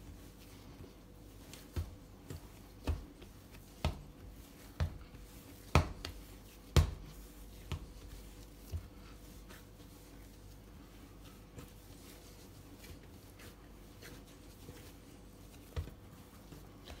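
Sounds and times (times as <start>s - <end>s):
dough thudding on benchtop: 1.5s - 9.0s.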